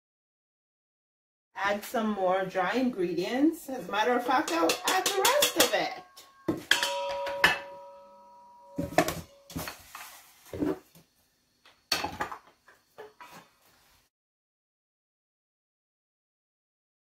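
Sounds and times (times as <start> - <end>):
steel bowl knocking and ringing: 4.3 - 9.6
bowls clinking together: 4.4 - 9.6.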